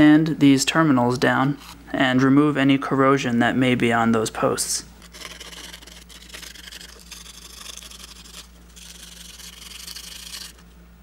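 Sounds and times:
sandpaper rubbing metal: 0:05.0 - 0:10.6.

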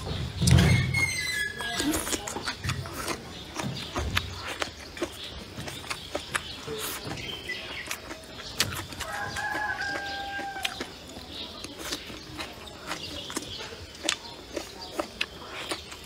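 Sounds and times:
chewing and sharp clicks: 0:00.0 - 0:16.0
rooster crowing: 0:09.0 - 0:10.8.

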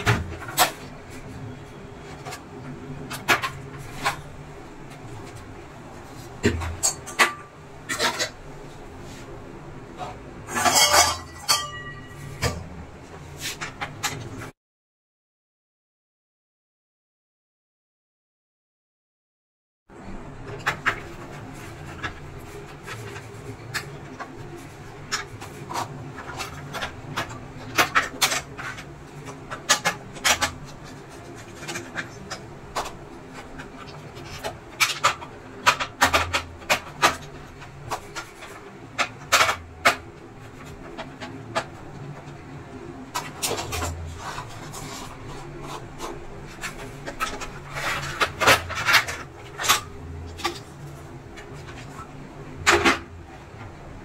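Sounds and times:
clicks and rattles of plastic parts: 0:20.4 - 0:53.8.

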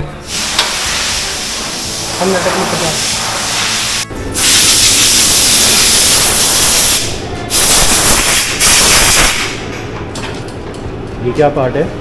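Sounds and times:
air blow gun hissing: 0:00.2 - 0:09.6.

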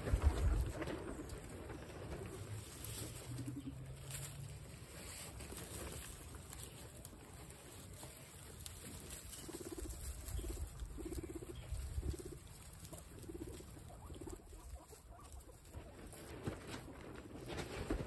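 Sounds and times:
wind rumbling on microphone: 0:00.0 - 0:02.6, 0:09.8 - 0:12.5
guinea pig purring: 0:08.8 - 0:16.8.

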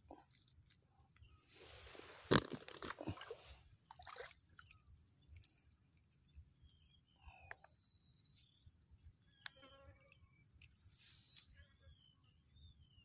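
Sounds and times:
water sloshing and dripping: 0:02.3 - 0:04.8.

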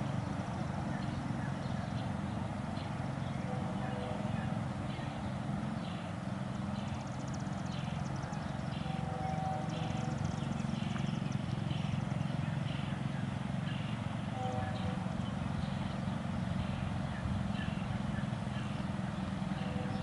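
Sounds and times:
low steady train rumble: 0:00.0 - 0:20.0.

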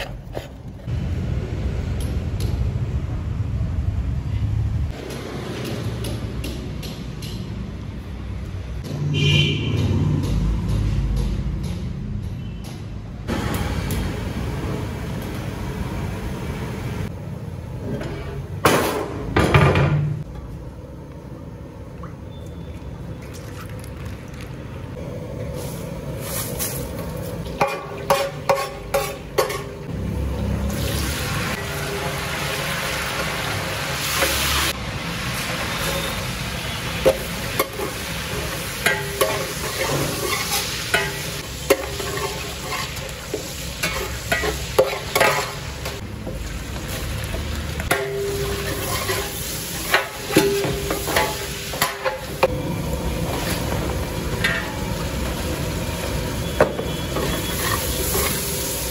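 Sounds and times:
metal spatula scraping pot: 0:27.6 - 0:29.8, 0:38.8 - 0:43.1, 0:43.8 - 0:45.6, 0:48.3 - 0:52.1, 0:56.9 - 0:58.5
spices sizzling in hot oil: 0:30.6 - 0:58.9.

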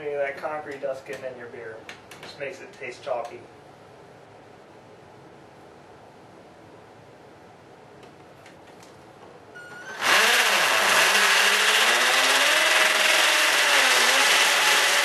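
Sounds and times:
cordless drill boring into masonry: 0:09.6 - 0:15.0.

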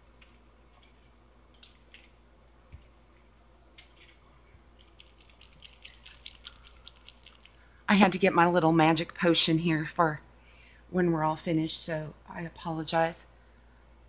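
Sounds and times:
small objects clicking: 0:04.8 - 0:07.8.

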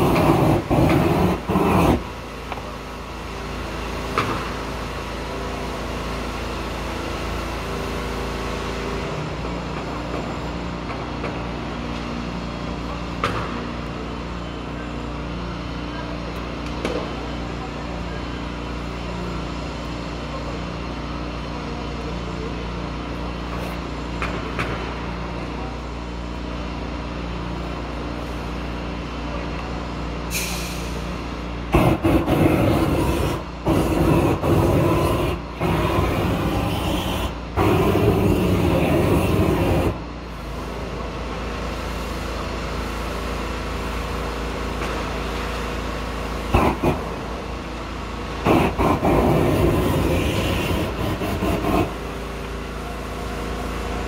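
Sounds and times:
roofing torch hissing: 0:00.0 - 0:02.3, 0:30.3 - 0:40.9, 0:48.4 - 0:52.5.

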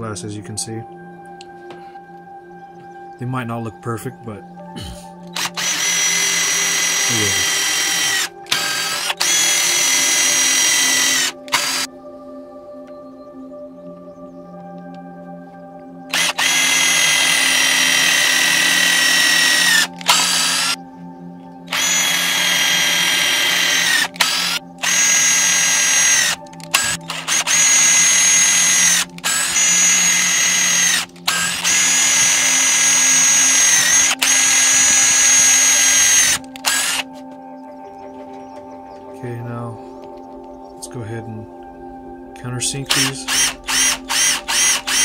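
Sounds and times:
power drill whining into plywood: 0:05.3 - 0:11.9, 0:16.1 - 0:20.8, 0:21.7 - 0:37.1, 0:43.0 - 0:45.0.

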